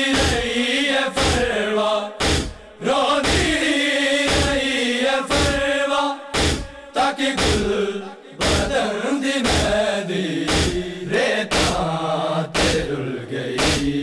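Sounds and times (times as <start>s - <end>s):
men chanting in unison: 0.0s - 14.0s
hands striking chests: 2.2s - 2.6s, 3.2s - 3.6s, 6.4s - 6.7s, 10.5s - 10.8s, 11.5s - 11.8s, 12.6s - 12.8s, 13.6s - 13.9s.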